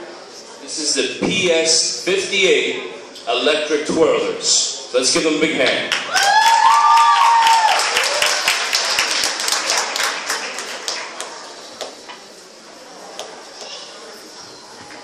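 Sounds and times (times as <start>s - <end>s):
audience applause: 5.9s - 11.5s.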